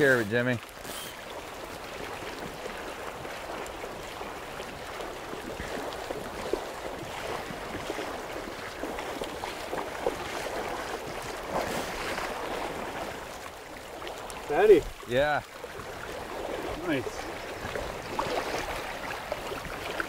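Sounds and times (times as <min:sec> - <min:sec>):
light water splashes: 0:00.0 - 0:20.0
river water rushing: 0:00.0 - 0:20.0.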